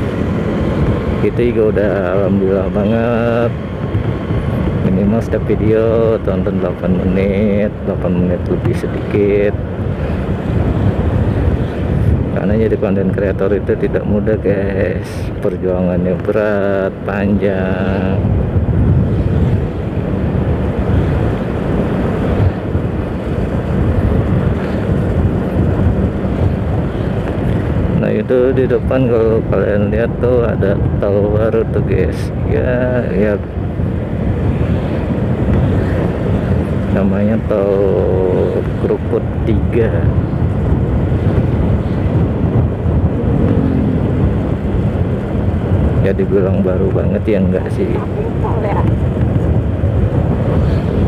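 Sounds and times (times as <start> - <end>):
passing traffic engine: 0.0 - 5.4, 40.0 - 46.0
motorcycle engine and road rumble: 0.0 - 51.0
wind buffeting microphone: 0.0 - 51.0.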